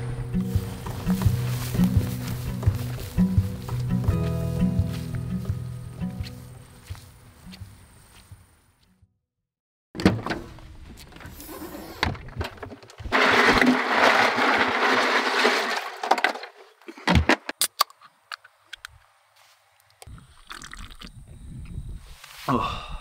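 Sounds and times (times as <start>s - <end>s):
ice and cans clattering: 12.5s - 17.5s.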